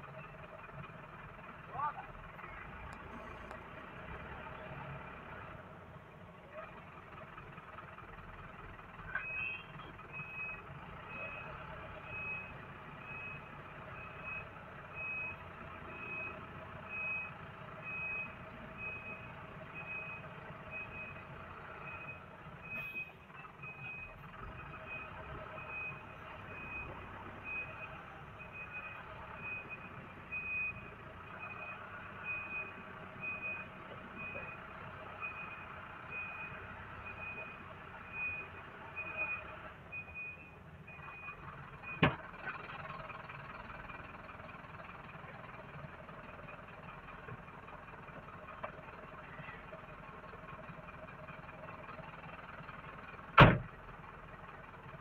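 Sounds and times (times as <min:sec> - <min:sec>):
vehicle running: 0:00.0 - 0:55.0
vehicle warning beeper: 0:09.0 - 0:43.8.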